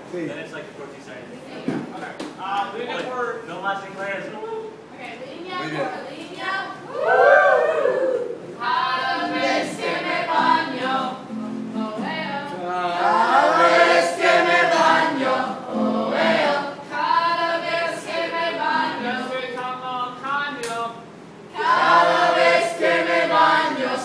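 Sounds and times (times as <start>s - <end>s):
choir singing: 8.6s - 12.1s, 12.9s - 19.6s, 21.5s - 24.0s.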